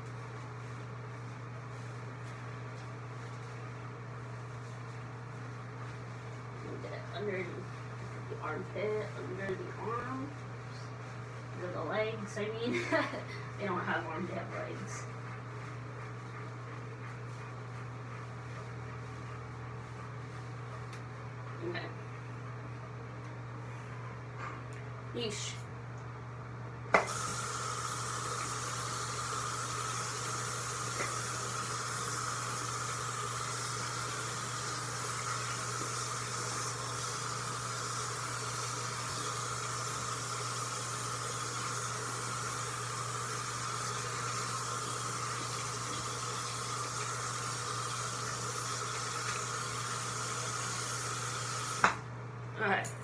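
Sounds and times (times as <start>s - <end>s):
water running from bathtub tap: 27.0s - 52.0s.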